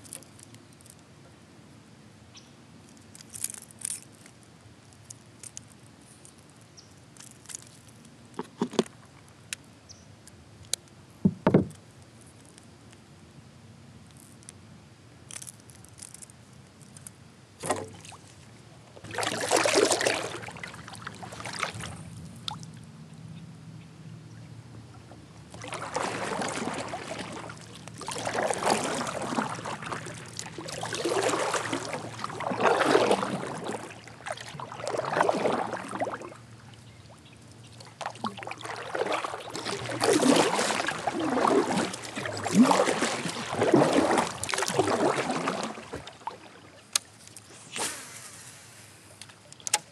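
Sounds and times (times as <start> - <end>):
kayak paddle strokes in water: 17.6 - 22.7, 25.0 - 49.9.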